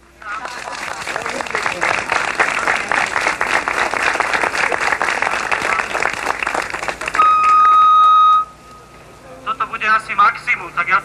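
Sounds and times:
crowd clapping: 0.2 - 8.2
loud steady beep: 7.2 - 9.0.

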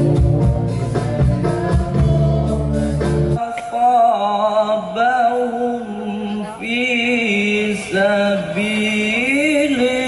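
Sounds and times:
instrumental music: 0.0 - 3.4
man singing unaccompanied: 0.0 - 10.0.

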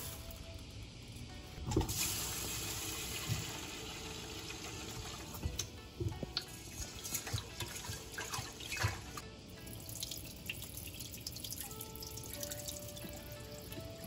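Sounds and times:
rinse water pouring into sink: 1.7 - 5.4, 6.4 - 9.2.

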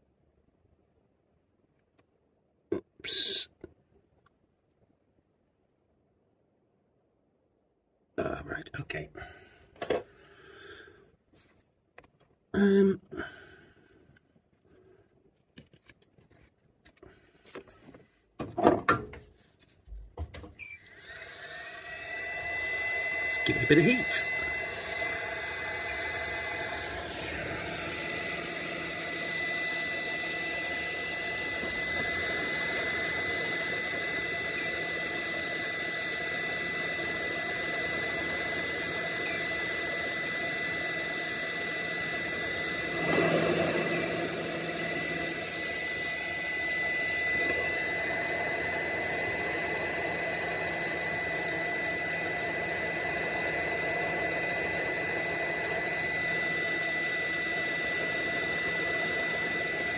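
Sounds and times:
hot air gun blowing with whine: 20.8 - 59.9.

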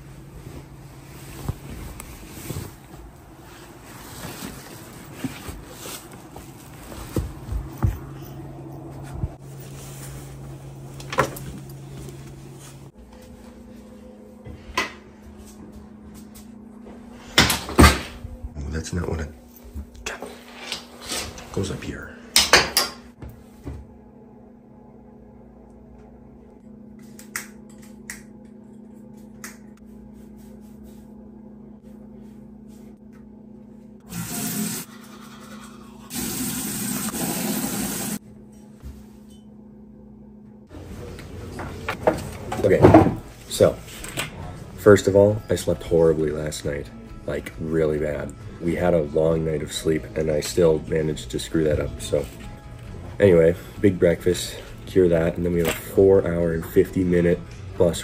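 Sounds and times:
low room hum: 0.0 - 58.0
clothes rustling: 0.2 - 13.6.

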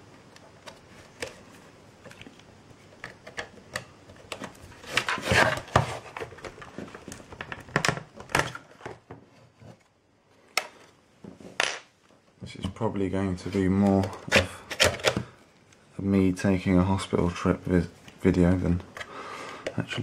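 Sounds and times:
knife scraping plastic: 4.3 - 7.2.

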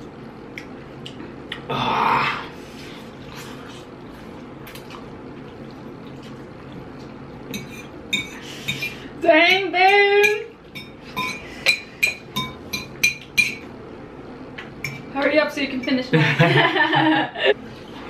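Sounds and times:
person eating: 0.4 - 9.1.

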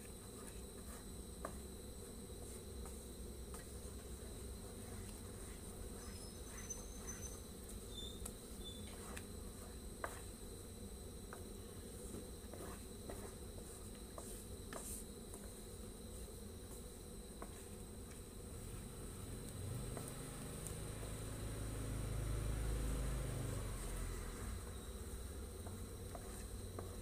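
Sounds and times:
spatula stirring thick mixture: 8.8 - 10.3, 12.4 - 15.6, 25.6 - 27.0.

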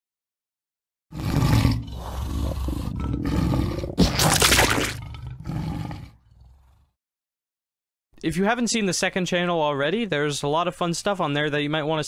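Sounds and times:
monster roaring: 1.1 - 6.9.

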